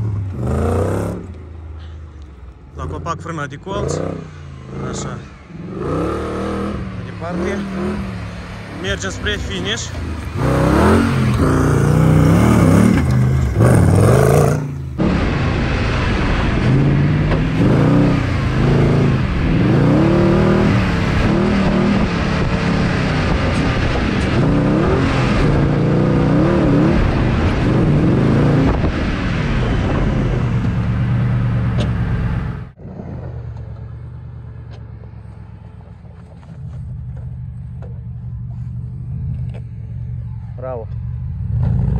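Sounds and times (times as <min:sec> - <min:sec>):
buggy engine revving hard: 0:00.0 - 0:01.4, 0:02.8 - 0:33.2, 0:41.4 - 0:41.9.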